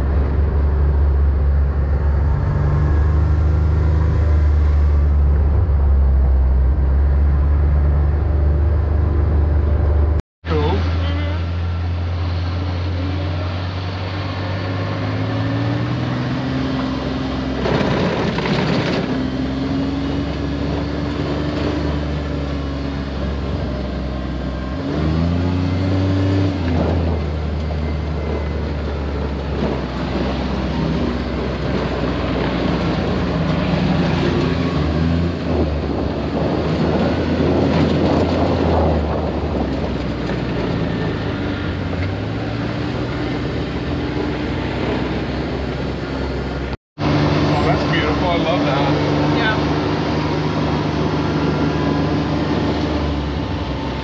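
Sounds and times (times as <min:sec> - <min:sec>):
tyre and wind noise: 0:13.9 - 0:47.8.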